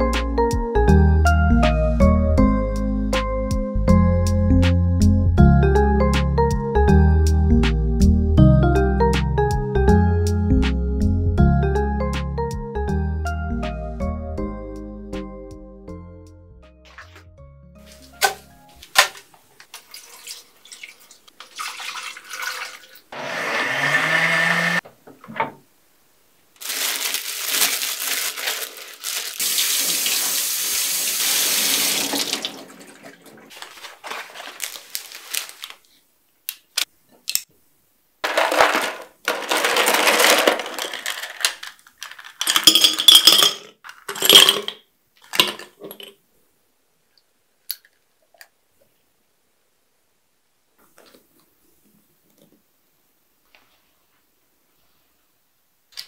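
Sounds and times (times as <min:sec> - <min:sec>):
tap water running: 0:18.1 - 0:23.2, 0:29.4 - 0:33.7
blender motor running: 0:23.2 - 0:24.8.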